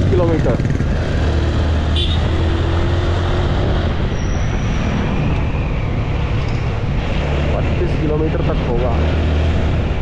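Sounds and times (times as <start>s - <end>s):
motorcycle engine running: 0.0s - 2.5s
road noise: 0.0s - 10.0s
wind rushing on microphone: 2.2s - 10.0s.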